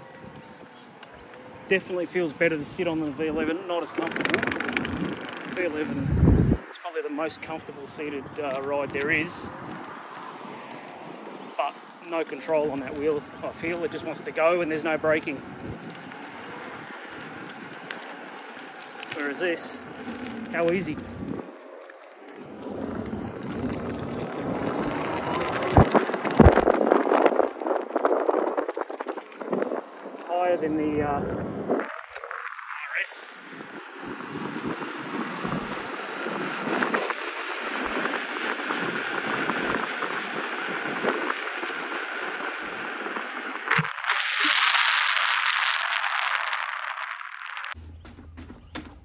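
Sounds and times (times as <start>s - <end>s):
tyre road noise: 0.0s - 49.0s
wind rushing over microphone: 1.9s - 12.0s, 12.6s - 47.8s
sharp thumps: 4.0s - 6.6s.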